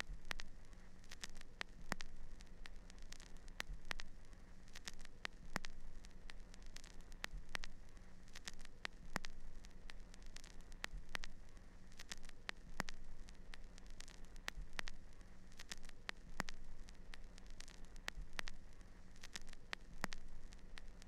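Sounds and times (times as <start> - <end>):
crackling static: 0.0 - 21.0
low steady hum: 0.0 - 21.0
sharp clicks: 1.1 - 4.1, 4.7 - 7.7, 8.3 - 11.3, 12.0 - 15.0, 15.6 - 18.6, 19.2 - 21.0.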